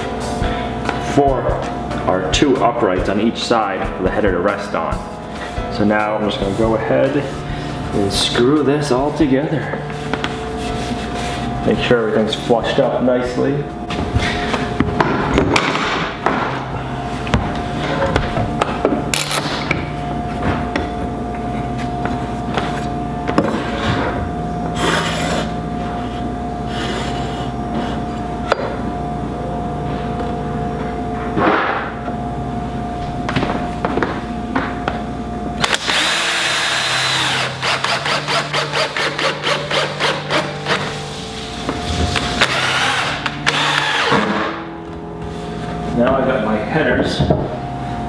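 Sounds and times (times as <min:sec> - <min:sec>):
background music: 0:00.0 - 0:33.2, 0:35.5 - 0:48.0
cordless drill driving a screw: 0:35.6 - 0:40.8, 0:42.4 - 0:44.3.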